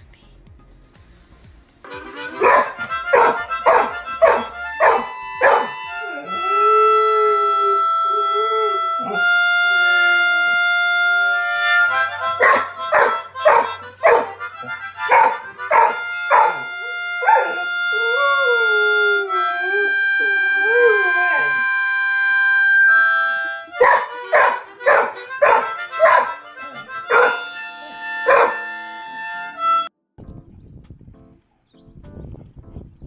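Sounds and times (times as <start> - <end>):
harmonica chords: 0.0 - 30.0
dog howling: 2.4 - 9.8, 12.2 - 21.8, 23.7 - 28.9.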